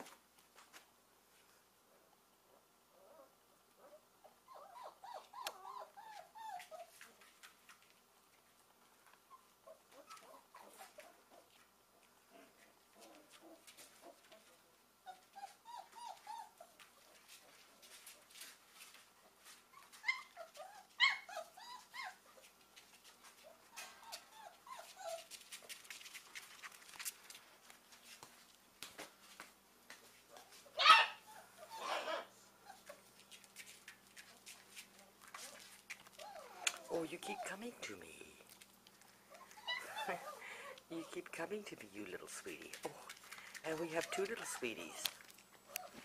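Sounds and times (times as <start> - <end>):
puppy whining: 2.9 - 7.3, 9.0 - 11.5, 12.3 - 17.9, 19.2 - 22.6, 23.2 - 25.7, 30.3 - 33.5, 35.0 - 38.0, 39.0 - 41.3, 43.7 - 46.0
puppies whimpering: 4.3 - 6.9, 15.1 - 16.8, 19.8 - 22.4, 23.6 - 25.3, 31.2 - 33.0, 36.1 - 37.8, 39.3 - 41.2.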